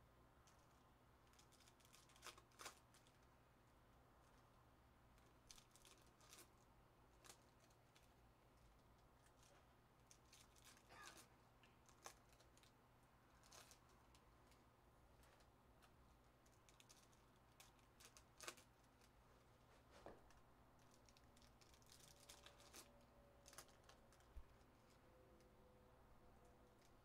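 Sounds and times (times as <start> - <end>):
foil wrappers rustling: 1.2 - 3.3, 5.2 - 6.6, 7.2 - 14.6, 15.2 - 25.0.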